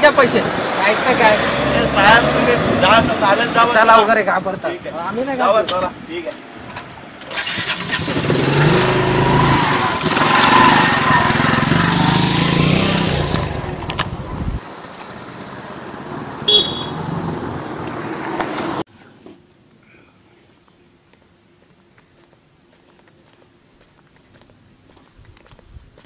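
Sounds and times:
vehicle engine driving off: 7.3s - 18.2s.

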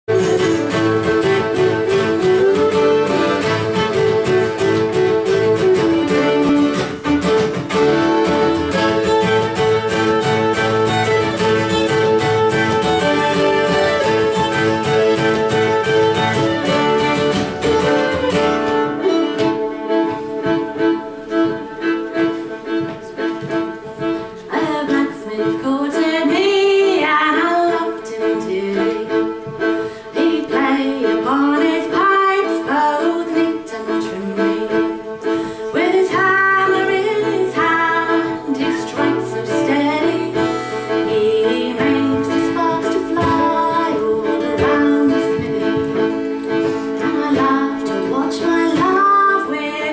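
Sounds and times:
fast-strummed acoustic guitar: 0.1s - 18.9s, 37.0s - 49.7s
fiddle playing folk tune: 0.1s - 49.9s.

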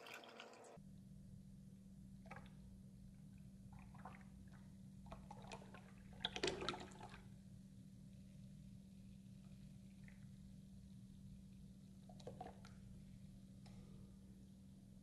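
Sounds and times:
liquid trickling and splashing: 0.0s - 0.8s, 3.7s - 7.3s.

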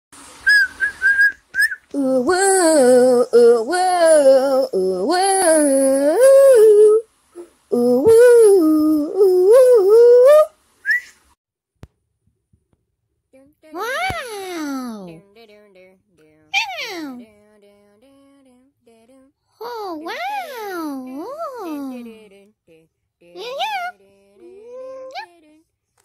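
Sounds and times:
high whistled notes: 0.4s - 1.9s, 10.8s - 11.2s
person singing wordless tune: 1.9s - 10.5s, 13.3s - 25.9s.

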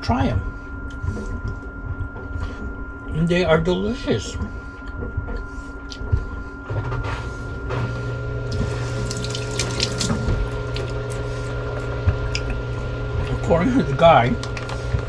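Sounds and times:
steady low hum: 0.0s - 15.0s
faucet running: 8.5s - 11.3s
water splashing over hands: 8.5s - 11.3s.

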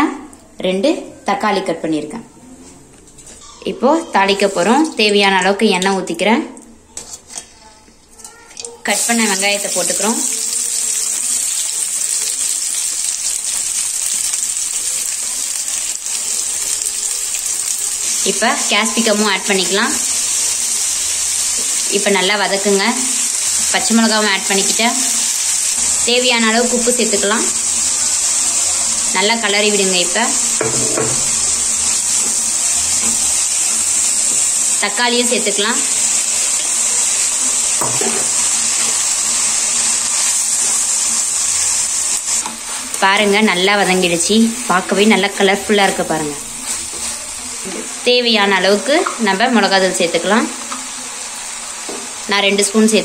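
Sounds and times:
onions sizzling in hot oil: 8.5s - 53.0s
wooden spatula stirring: 46.4s - 48.0s.

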